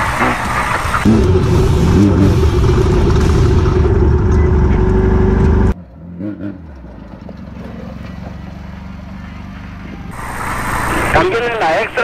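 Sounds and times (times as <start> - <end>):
race car engine running loud: 0.0 - 5.8
engine drone from outside: 0.0 - 12.0.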